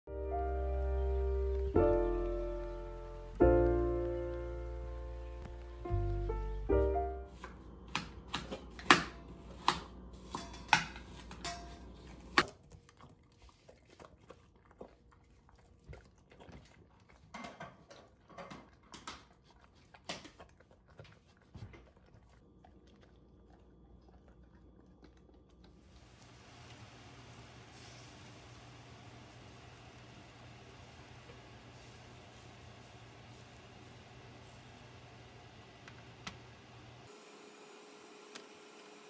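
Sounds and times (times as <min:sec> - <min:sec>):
dog chewing food: 0:12.4 - 0:26.2.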